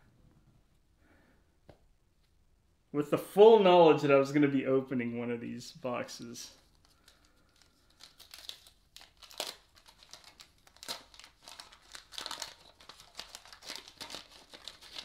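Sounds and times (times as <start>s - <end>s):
wax paper wrapper crinkling: 6.5s - 15.0s.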